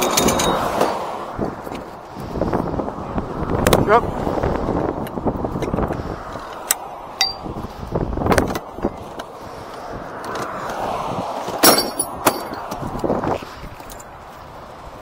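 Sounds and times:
metal tools clinking: 0:00.0 - 0:01.0, 0:07.2 - 0:07.5, 0:11.6 - 0:12.6
passing highway traffic: 0:00.0 - 0:15.0.

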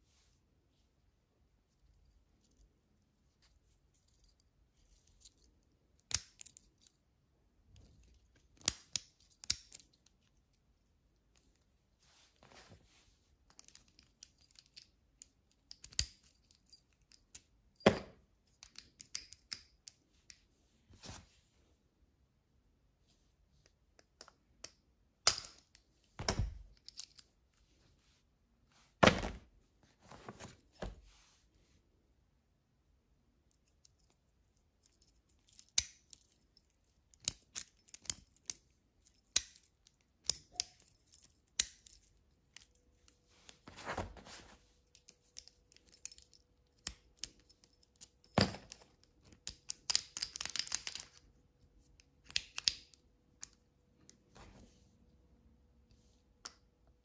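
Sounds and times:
padlocks and keys rattling: 0:01.6 - 0:12.4, 0:13.4 - 0:20.4, 0:23.9 - 0:27.5, 0:33.4 - 0:44.0, 0:44.8 - 0:54.5.

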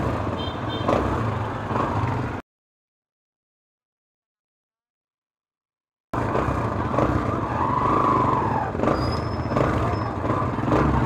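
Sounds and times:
vehicle engines rumbling: 0:00.0 - 0:02.4, 0:06.2 - 0:11.0.

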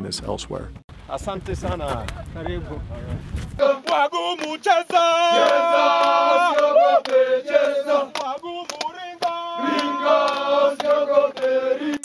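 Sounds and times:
group singing together: 0:03.6 - 0:12.0
hand claps: 0:03.8 - 0:12.0.

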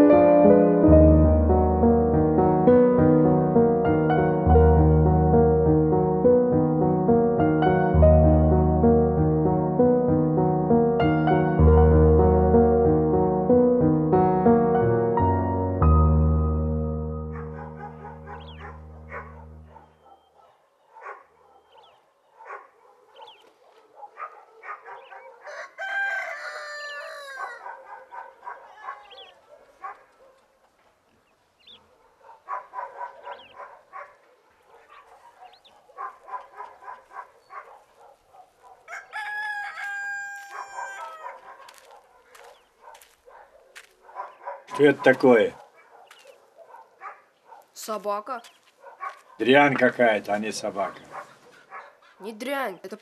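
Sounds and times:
rooster crowing: 0:25.4 - 0:27.7, 0:38.9 - 0:41.4.

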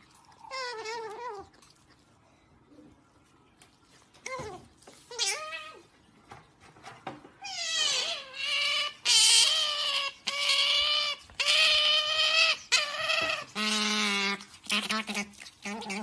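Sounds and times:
otter squeaking: 0:07.4 - 0:16.0.

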